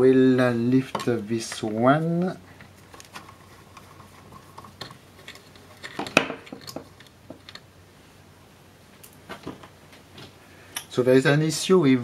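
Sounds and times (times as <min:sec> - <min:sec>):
screwdriver clicking and scraping: 0:02.6 - 0:07.6.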